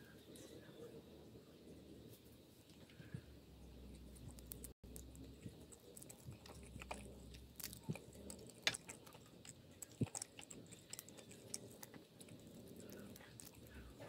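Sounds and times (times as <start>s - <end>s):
wet squishing of sauce and cheese: 3.9s - 14.0s.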